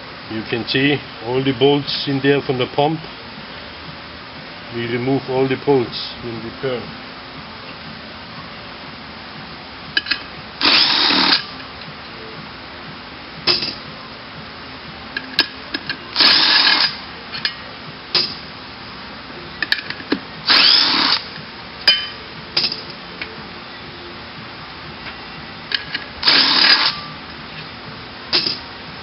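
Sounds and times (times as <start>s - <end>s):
power tool spinning out bolts: 10.0s - 11.5s, 13.5s - 13.8s, 15.2s - 17.5s, 19.6s - 22.0s, 25.7s - 27.1s, 28.3s - 28.6s.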